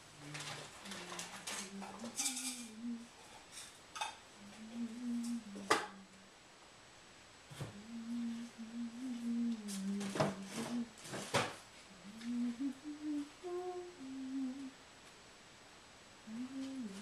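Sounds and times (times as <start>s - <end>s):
person humming: 0.0s - 3.2s, 4.4s - 6.3s, 7.6s - 11.0s, 11.9s - 14.8s, 16.2s - 17.0s.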